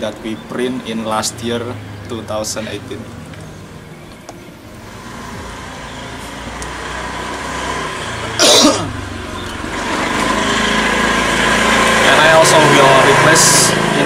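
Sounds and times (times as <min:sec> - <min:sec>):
motor vehicle engine: 0:00.0 - 0:14.0
man coughing: 0:08.4 - 0:09.0.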